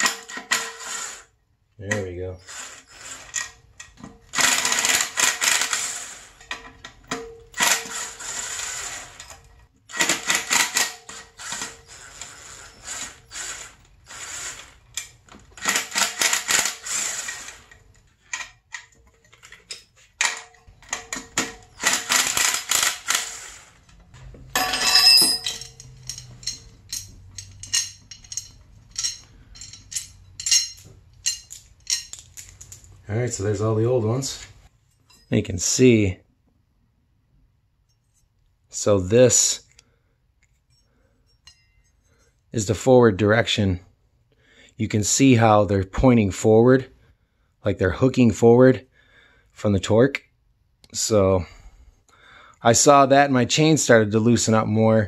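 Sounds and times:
metal bolts clinking: 0:17.7 - 0:23.1, 0:24.4 - 0:33.0
impact driver hammering bolts: 0:20.2 - 0:23.4.

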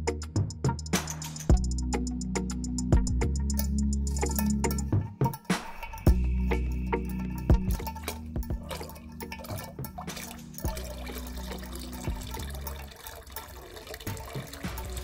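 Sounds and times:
water running and dripping: 0:05.7 - 0:15.0.

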